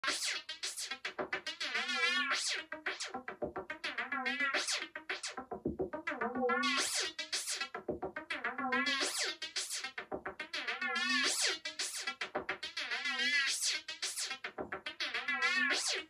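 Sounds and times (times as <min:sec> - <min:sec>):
fast pulsing beat: 0:03.2 - 0:03.9, 0:09.4 - 0:12.8.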